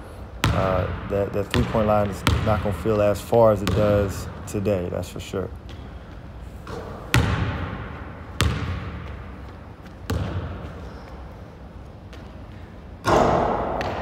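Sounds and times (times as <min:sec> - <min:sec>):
basketball bouncing on wooden floor: 0:01.5 - 0:02.8, 0:03.6 - 0:04.1, 0:06.7 - 0:09.2, 0:09.9 - 0:10.7.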